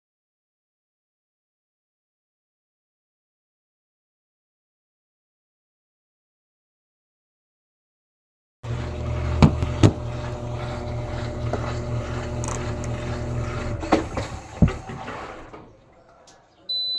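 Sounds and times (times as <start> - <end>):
washing machine motor hum: 8.6 - 16.9
washing machine knocks: 9.4 - 10.1, 13.8 - 15.6.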